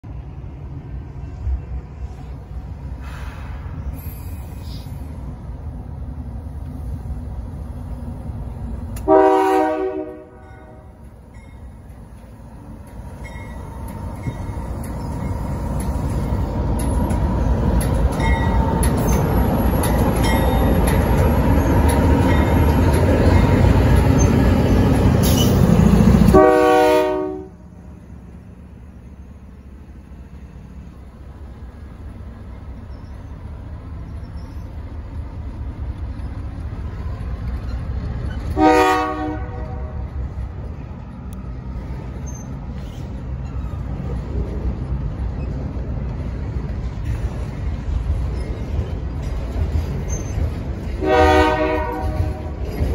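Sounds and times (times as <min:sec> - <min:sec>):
locomotive engine rumble: 0:00.0 - 0:52.9
freight cars rolling by: 0:00.2 - 0:26.7, 0:27.6 - 0:52.9
train horn blast: 0:09.0 - 0:11.0, 0:26.2 - 0:27.6, 0:38.5 - 0:40.1, 0:51.0 - 0:52.6.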